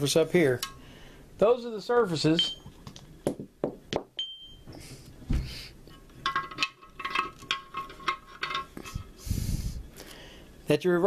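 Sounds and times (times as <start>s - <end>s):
metal parts clinking: 6.1s - 9.2s.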